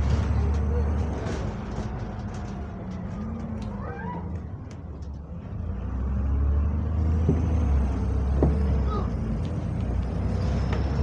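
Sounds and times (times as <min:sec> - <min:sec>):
bus diesel engine hum: 0:00.0 - 0:11.0.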